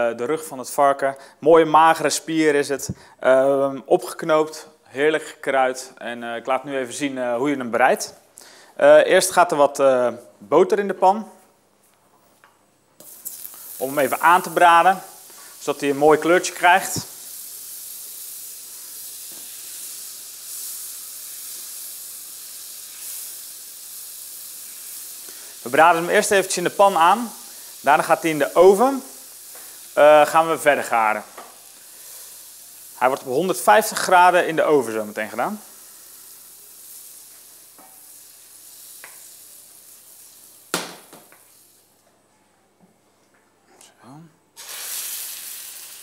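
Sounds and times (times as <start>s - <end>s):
butter sizzling in a frying pan: 13.0s - 42.0s, 44.6s - 46.0s
sharp knock: 40.7s - 41.3s.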